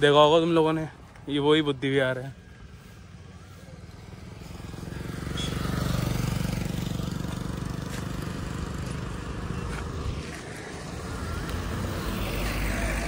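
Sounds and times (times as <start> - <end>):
vehicle engine running: 2.7 - 13.0.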